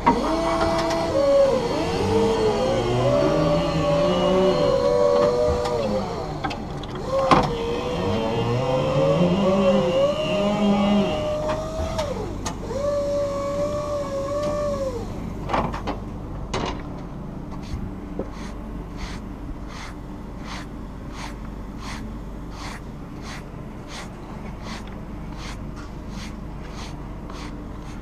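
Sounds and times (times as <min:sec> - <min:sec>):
forklift motor whining: 0:00.0 - 0:15.3
hand brushing sawdust off wood: 0:17.6 - 0:28.0.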